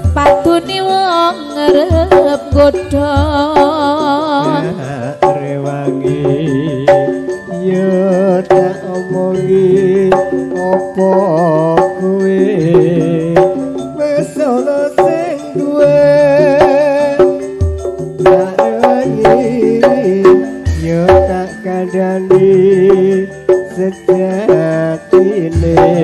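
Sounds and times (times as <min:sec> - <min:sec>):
live band music: 0:00.0 - 0:26.0
hand drum strokes: 0:15.0 - 0:21.5.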